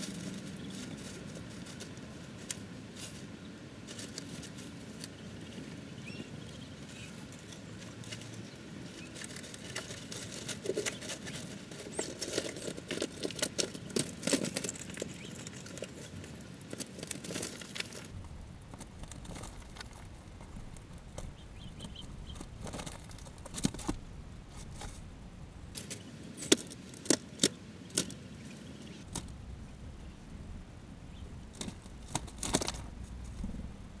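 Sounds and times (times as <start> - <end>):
chipmunk rummaging among peanuts: 0.0 - 25.0, 31.5 - 33.5.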